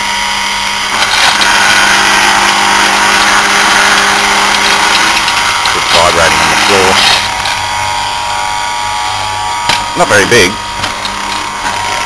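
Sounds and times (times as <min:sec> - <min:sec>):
electric pump motor humming: 0:00.0 - 0:12.0.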